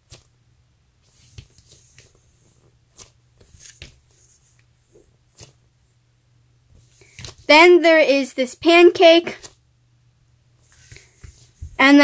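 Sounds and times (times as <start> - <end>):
low steady hum: 0.0 - 12.0
rustling of foam toys: 10.6 - 12.0.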